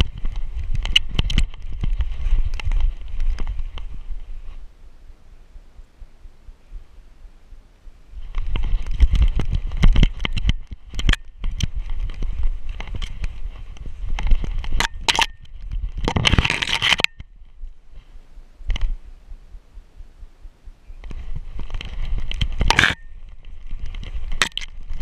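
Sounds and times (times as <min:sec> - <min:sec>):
twigs and branches scraping: 0:00.0 - 0:04.8, 0:08.1 - 0:19.1, 0:21.0 - 0:25.0.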